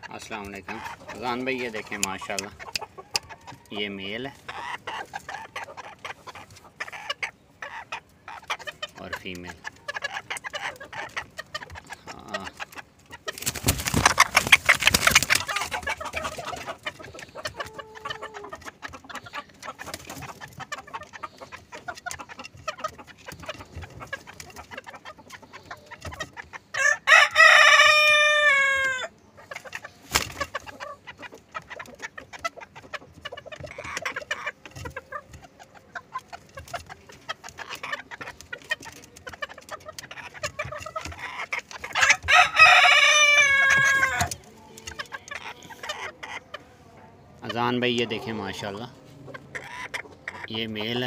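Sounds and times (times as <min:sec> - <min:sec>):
chickens clucking softly: 0:00.0 - 0:51.0
rooster crowing: 0:26.8 - 0:29.1, 0:42.0 - 0:44.3.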